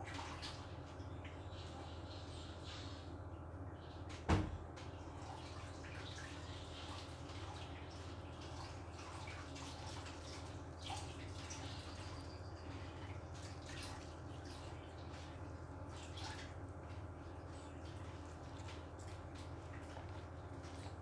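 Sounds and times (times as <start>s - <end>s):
steady low hum: 0.0s - 21.0s
rabbit chewing crunchy food: 18.2s - 21.0s.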